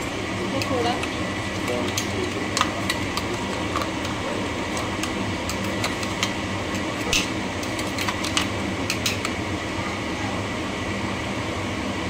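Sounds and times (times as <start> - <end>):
fan hum: 0.0 - 12.0
metal utensil clicking on pan: 7.1 - 9.3.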